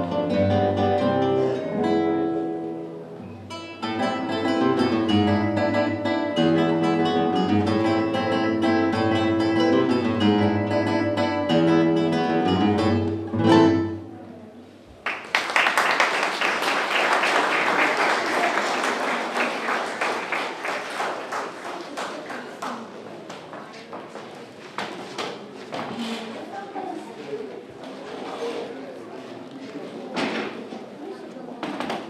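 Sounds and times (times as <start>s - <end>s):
classical guitar duet: 0.0s - 14.7s
audience applause: 15.0s - 22.8s.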